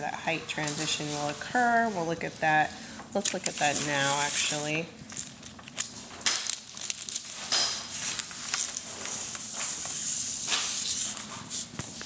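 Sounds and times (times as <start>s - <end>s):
paper rustling and sliding: 5.6s - 12.0s.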